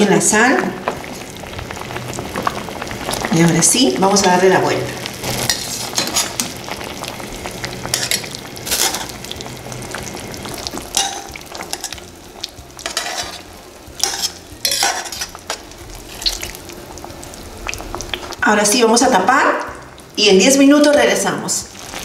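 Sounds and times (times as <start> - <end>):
sauce sizzling in pot: 0.0 - 22.0
metal utensil scraping pot: 5.3 - 6.6, 7.9 - 9.2, 10.9 - 12.0, 12.8 - 16.5.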